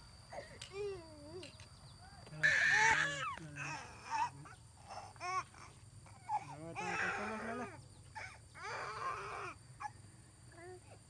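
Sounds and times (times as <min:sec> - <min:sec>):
baby crying: 0:02.4 - 0:09.9.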